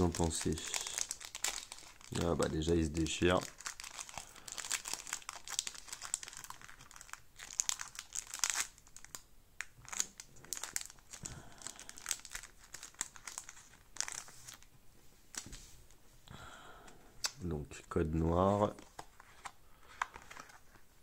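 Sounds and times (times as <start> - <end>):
foil wrapper crinkling and tearing: 0.0 - 14.7.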